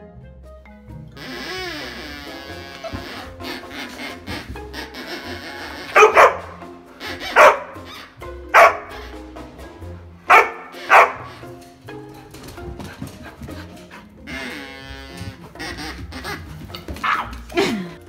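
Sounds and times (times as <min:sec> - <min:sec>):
background music: 0:00.0 - 0:18.0
dog barking: 0:06.0 - 0:06.6, 0:07.2 - 0:07.9, 0:08.5 - 0:09.0, 0:10.3 - 0:11.4, 0:17.0 - 0:17.3.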